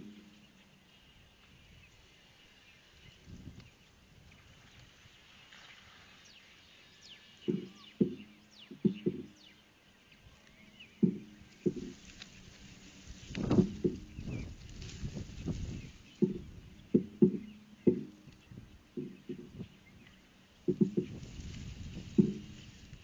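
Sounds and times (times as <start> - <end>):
short dull knocks: 7.4 - 9.6, 10.7 - 23.0.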